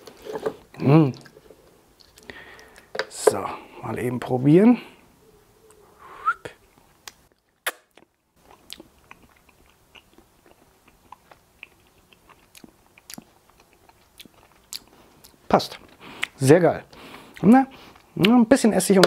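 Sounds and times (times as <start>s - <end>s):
person chewing: 2.0s - 2.9s, 6.7s - 18.2s
mouth clicks: 5.7s - 10.2s.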